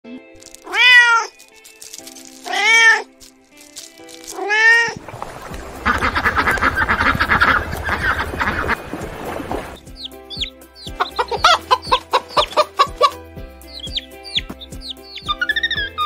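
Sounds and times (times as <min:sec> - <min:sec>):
rapid pulsing animal chatter: 0:00.4 - 0:16.0
kitten meowing: 0:00.6 - 0:01.4, 0:02.4 - 0:03.1, 0:04.3 - 0:05.0, 0:15.2 - 0:16.0.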